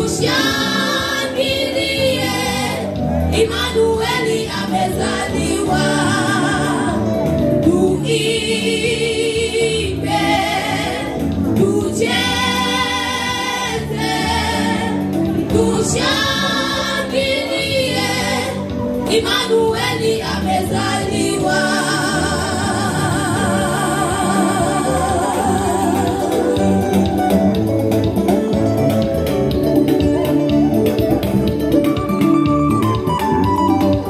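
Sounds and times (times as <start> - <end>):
choir of women singing gospel: 0.0 - 26.9
amplified instrumental backing: 0.0 - 34.0.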